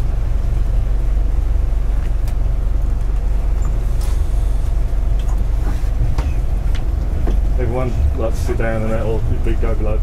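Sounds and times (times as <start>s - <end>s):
boat engine low rumble: 0.0s - 10.0s.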